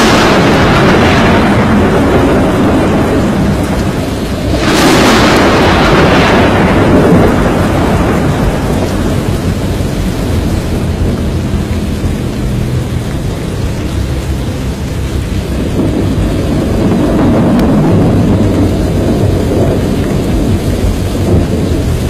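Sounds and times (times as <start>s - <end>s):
heavy low storm rumble: 0.0s - 22.0s
rain-like hiss: 0.0s - 22.0s.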